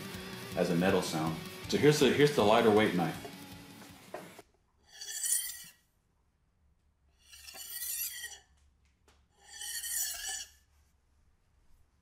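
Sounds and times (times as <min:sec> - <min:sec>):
knife scraping countertop: 0:04.9 - 0:05.8, 0:07.2 - 0:08.5, 0:09.4 - 0:10.6.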